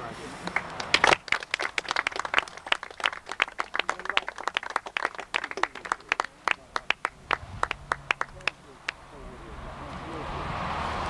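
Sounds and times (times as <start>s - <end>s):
people clapping: 0.4s - 9.0s.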